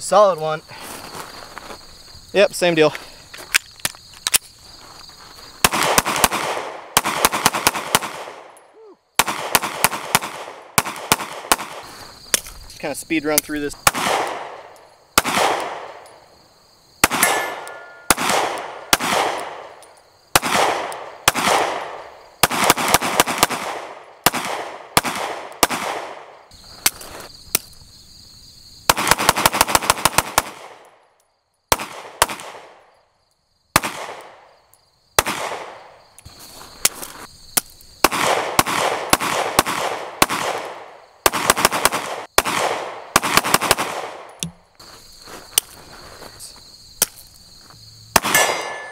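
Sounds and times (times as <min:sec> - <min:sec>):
pistol gunshots: 0:05.6 - 0:08.6, 0:09.2 - 0:11.9, 0:13.8 - 0:16.0, 0:17.0 - 0:26.4, 0:28.9 - 0:30.9, 0:31.7 - 0:32.8, 0:33.8 - 0:34.4, 0:35.2 - 0:35.9, 0:38.0 - 0:44.3, 0:48.1 - 0:48.9.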